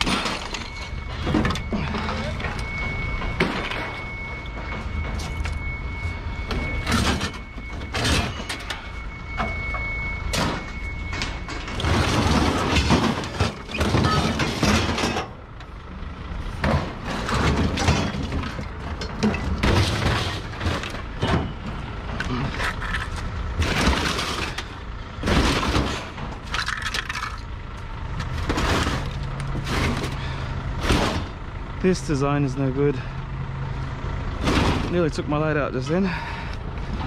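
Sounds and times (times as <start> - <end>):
heavy machinery running: 0.0 - 37.0
high-pitched tone: 0.3 - 13.4.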